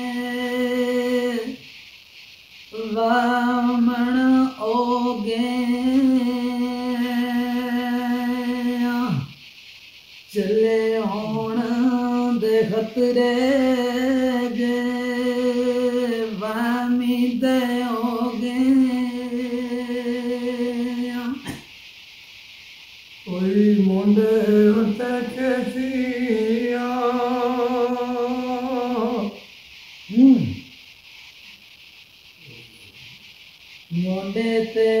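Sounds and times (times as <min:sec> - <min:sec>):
man singing unaccompanied: 0:00.0 - 0:01.6, 0:02.7 - 0:09.4, 0:10.3 - 0:21.6, 0:23.2 - 0:29.5, 0:33.9 - 0:35.0.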